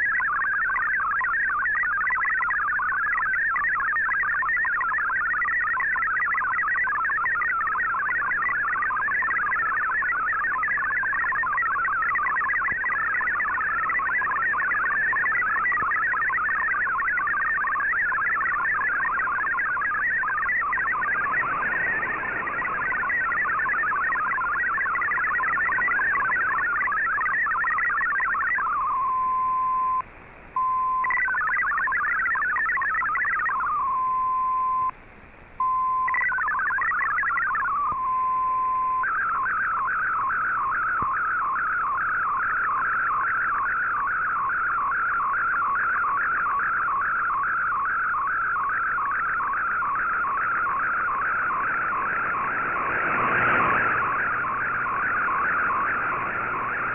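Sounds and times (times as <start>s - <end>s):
fast repeating warble: 0.0s - 29.0s, 31.0s - 33.7s, 36.1s - 37.8s, 39.0s - 56.9s
warbling digital data signal: 0.0s - 30.0s, 30.6s - 34.9s, 35.7s - 56.9s
steady single tone: 48.4s - 56.9s.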